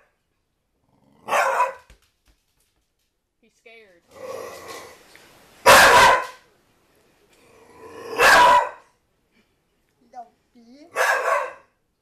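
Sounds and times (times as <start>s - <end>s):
puppy barking: 1.2s - 1.9s, 5.6s - 6.5s, 8.2s - 8.9s, 10.9s - 11.8s.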